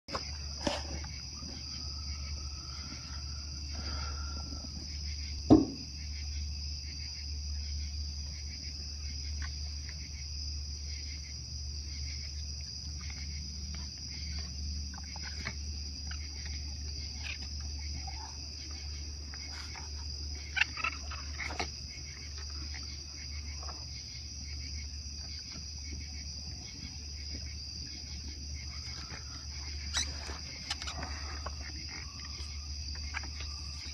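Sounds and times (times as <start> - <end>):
night insects chorus: 0.1 - 33.9
sharp thump: 5.5 - 5.9.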